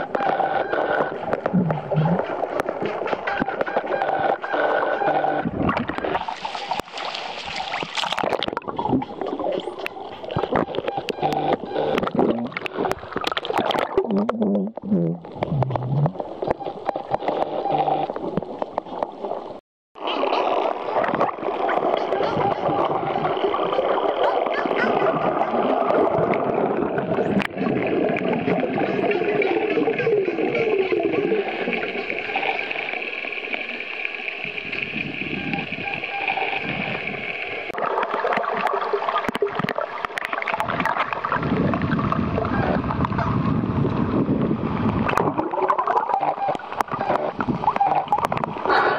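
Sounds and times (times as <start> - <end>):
crackling underwater noise: 0.0 - 48.9
water churning: 0.0 - 48.9
underwater sharp clicks: 37.7 - 43.3, 44.8 - 48.7.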